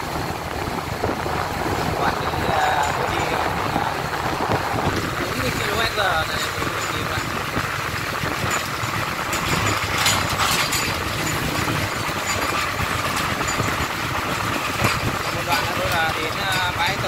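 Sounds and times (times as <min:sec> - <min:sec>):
diesel truck engine running: 0:00.0 - 0:17.0
road noise: 0:00.0 - 0:17.0.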